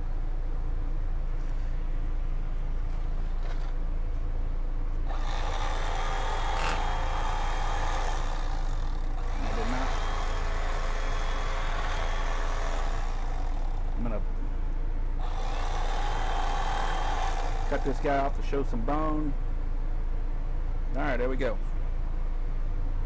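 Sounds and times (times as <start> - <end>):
low engine hum: 0.0 - 23.0.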